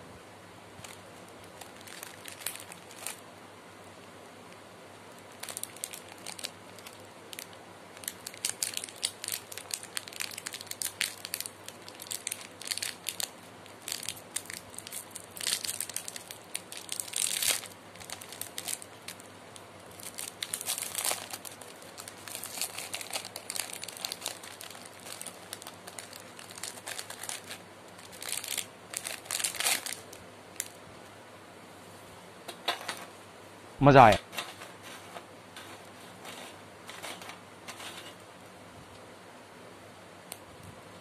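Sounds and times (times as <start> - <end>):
plastic wrapper crinkling: 0.8 - 3.2, 5.1 - 30.8.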